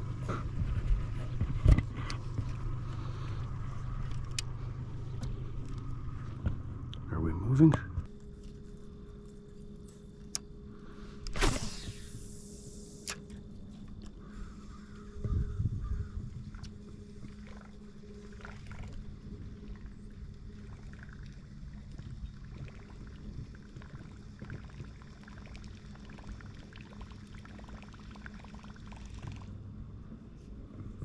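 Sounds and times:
outboard engine humming: 0.0 - 31.0.

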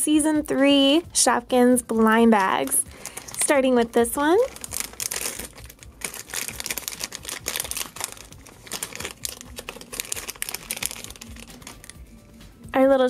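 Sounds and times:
plastic bag crinkling and tearing: 2.4 - 12.0.

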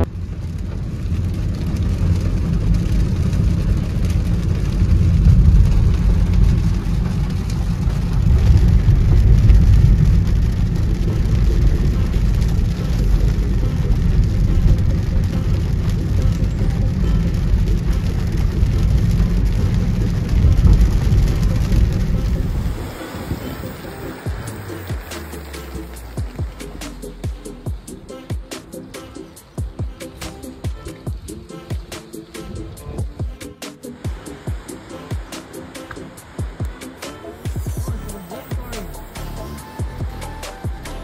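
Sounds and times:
rain and wet tyres hissing: 0.0 - 41.0
road and engine rumble: 0.0 - 41.0.

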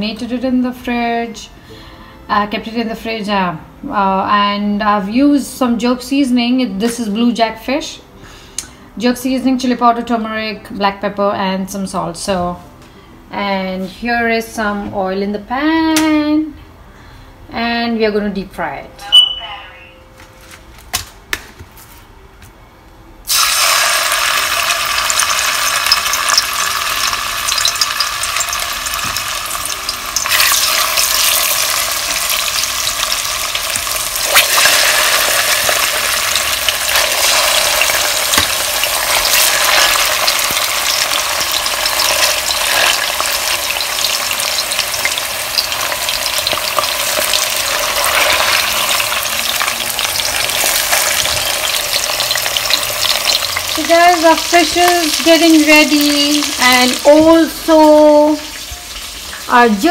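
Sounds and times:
fish deep frying in oil: 23.3 - 59.9.

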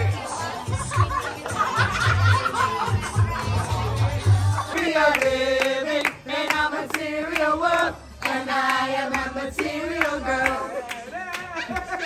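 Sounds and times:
handclaps keeping the beat: 4.5 - 12.0.

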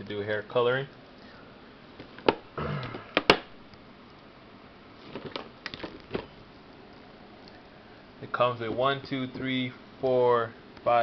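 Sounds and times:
packaging rustling: 5.0 - 6.4.

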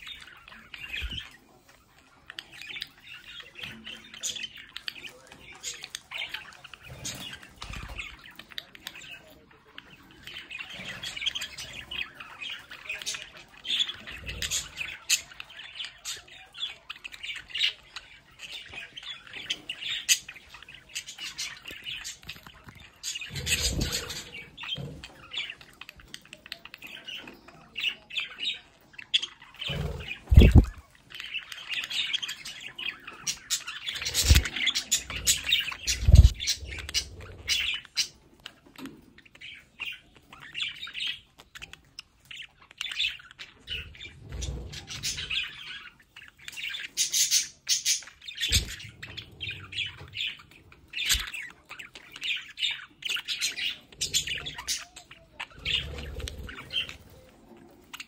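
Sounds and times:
budgerigars chattering and chirping: 0.0 - 58.0.

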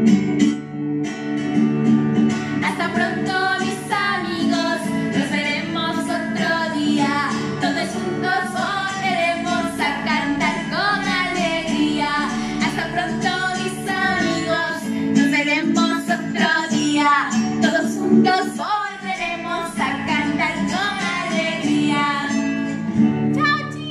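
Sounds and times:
strummed guitar: 0.0 - 23.9
woman singing: 2.5 - 23.9.

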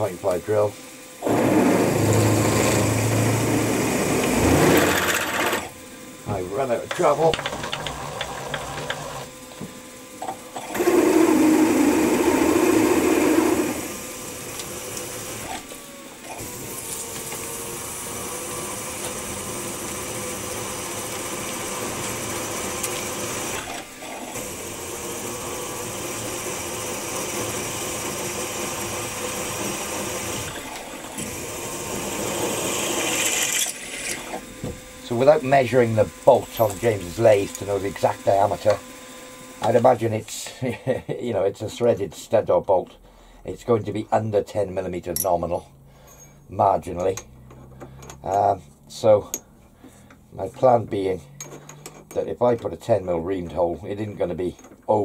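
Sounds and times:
milling machine drilling metal: 0.0 - 40.3.

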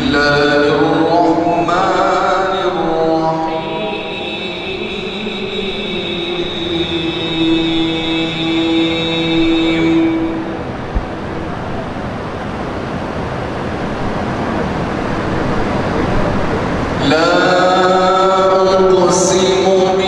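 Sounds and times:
man chanting over loudspeaker: 0.0 - 11.3, 15.7 - 20.0
steady rushing background noise: 0.0 - 20.0.

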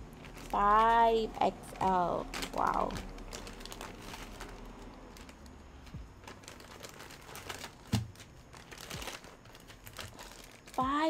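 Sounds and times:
plastic pack clicks and rustling: 2.2 - 10.9.

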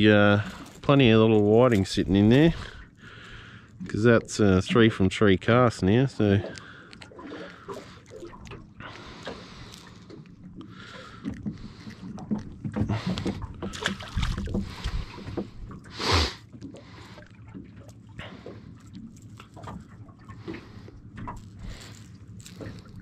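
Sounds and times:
rustling and knocks of fish: 0.0 - 4.0, 6.4 - 23.0
water slapping boat hull: 0.0 - 23.0
small splash in water: 13.2 - 14.9.

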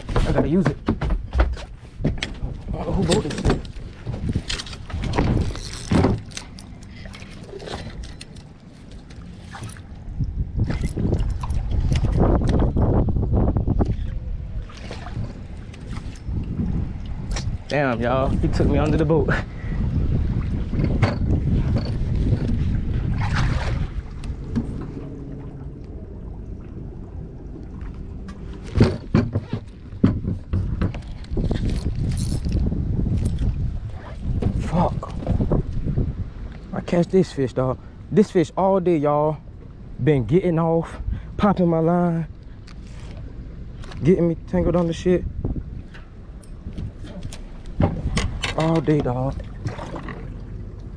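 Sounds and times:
knocks and bumps on boat: 0.0 - 6.5, 20.0 - 25.6, 27.8 - 32.0, 33.9 - 36.0, 46.6 - 50.3
thumps on fiberglass deck: 0.1 - 2.5, 28.8 - 31.1
low rumble: 2.4 - 36.8.

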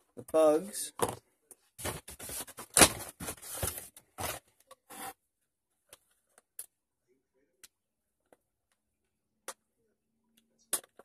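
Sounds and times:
plastic and cardboard rustling: 1.0 - 5.1.

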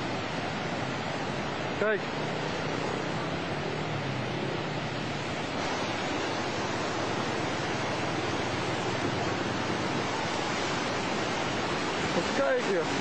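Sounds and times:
crashing waves: 0.0 - 13.0.

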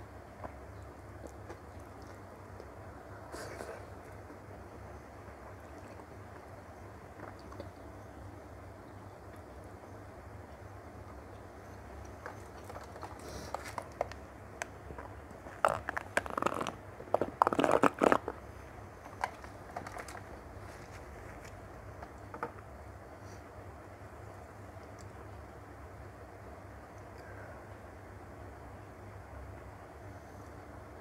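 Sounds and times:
wet chewing clicks: 1.2 - 2.8, 12.0 - 18.4
sucking drink through straw: 15.5 - 18.4.

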